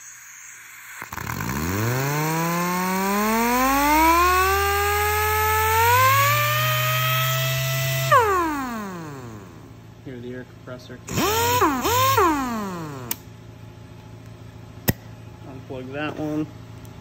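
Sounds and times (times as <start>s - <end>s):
pneumatic sander whining: 0.0s - 9.8s, 11.1s - 13.3s.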